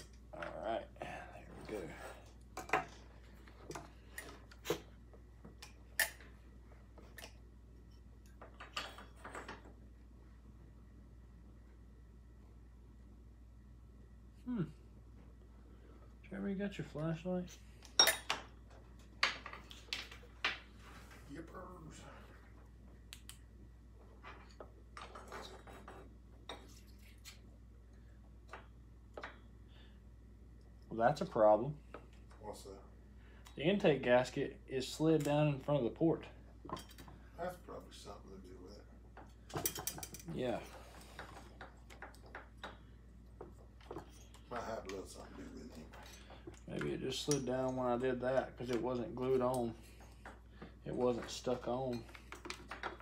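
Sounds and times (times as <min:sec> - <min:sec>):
low steady hum: 0:00.0 - 0:53.0
faint metal clinks and scrapes: 0:43.8 - 0:48.2.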